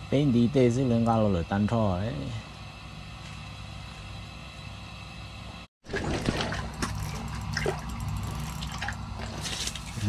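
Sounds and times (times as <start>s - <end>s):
steady low hum: 0.0s - 10.0s
water splashing and dripping: 5.9s - 10.0s.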